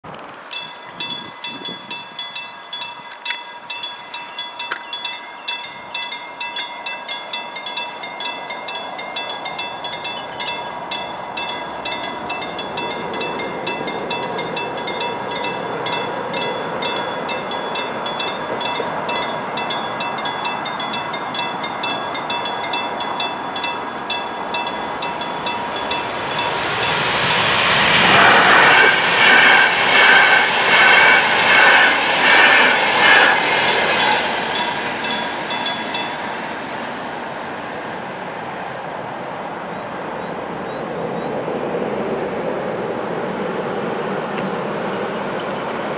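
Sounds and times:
train rumble: 0.0s - 45.9s
level crossing bell ringing: 0.5s - 28.0s.

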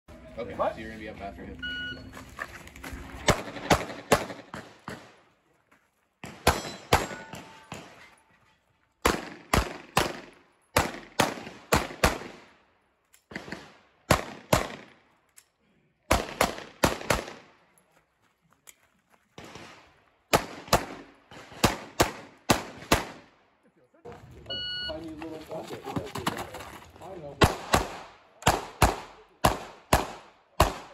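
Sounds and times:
pistol shots with echo: 3.3s - 5.2s, 6.2s - 8.0s, 9.0s - 12.6s, 13.3s - 15.0s, 16.1s - 17.5s, 20.3s - 23.3s, 27.4s - 30.9s.

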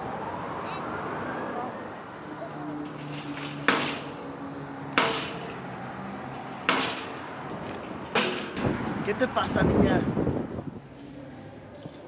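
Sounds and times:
shopping cart metallic clanks: 2.9s - 4.2s, 5.0s - 5.6s, 6.3s - 8.7s.

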